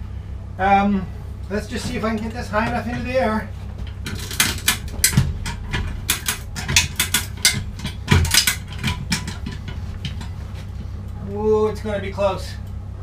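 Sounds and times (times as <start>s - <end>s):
lever hoist ratcheting: 3.9s - 10.3s.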